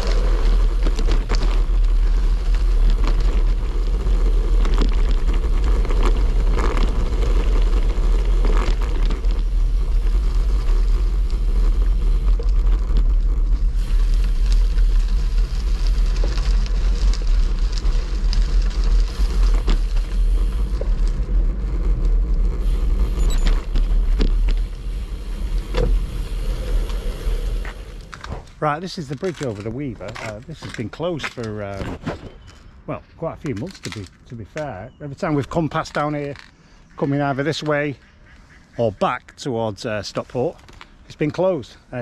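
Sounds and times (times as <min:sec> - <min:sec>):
wind rumbling on microphone: 0:00.0 - 0:32.9
grit ticks and jolts on gravel: 0:00.0 - 0:38.0, 0:38.8 - 0:42.0
bike tyres rolling: 0:00.0 - 0:38.5, 0:39.6 - 0:42.0.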